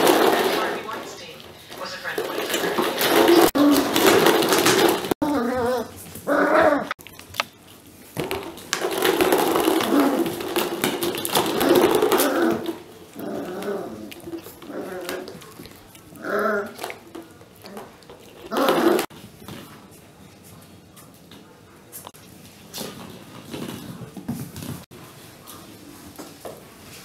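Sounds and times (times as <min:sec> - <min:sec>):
plastic balls knocking on plastic: 0:01.8 - 0:05.2, 0:08.2 - 0:15.8
puppy growling in play: 0:03.0 - 0:07.0, 0:11.3 - 0:19.1.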